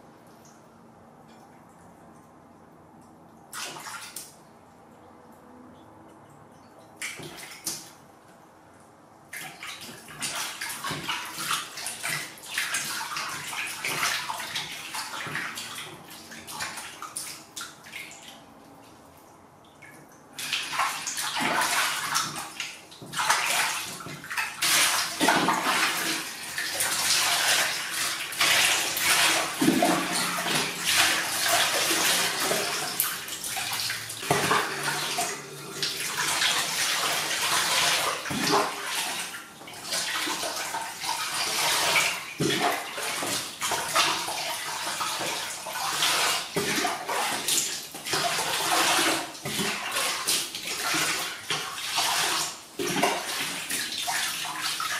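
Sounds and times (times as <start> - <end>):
water splashing in a plastic basin: 3.5 - 4.4, 7.0 - 8.1, 9.2 - 54.9.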